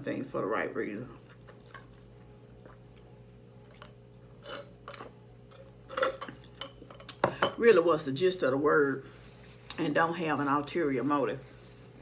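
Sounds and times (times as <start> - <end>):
swallowing and mouth sounds: 1.3 - 3.8.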